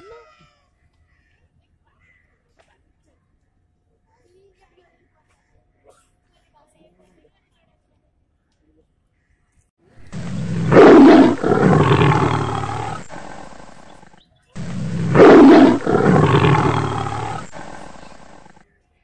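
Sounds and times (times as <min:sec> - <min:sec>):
big cat roaring: 0:10.0 - 0:18.6.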